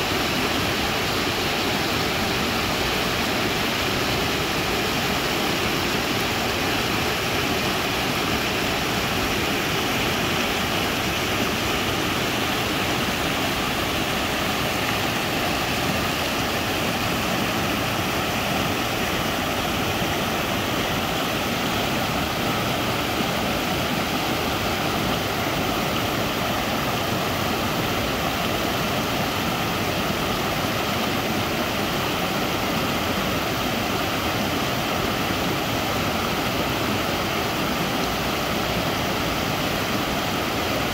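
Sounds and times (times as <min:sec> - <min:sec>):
stream water rushing over rocks: 0:00.0 - 0:40.9.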